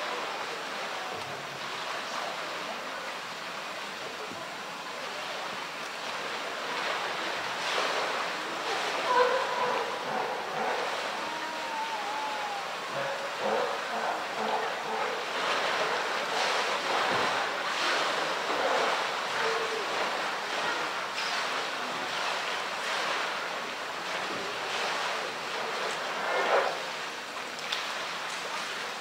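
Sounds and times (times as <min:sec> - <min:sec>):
water splashing: 0:00.0 - 0:29.0.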